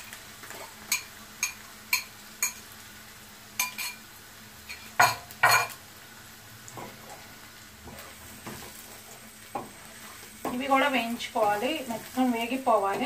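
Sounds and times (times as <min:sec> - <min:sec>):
glass and spoon clinking on pan: 0:00.9 - 0:02.6, 0:03.6 - 0:04.0, 0:04.7 - 0:05.8.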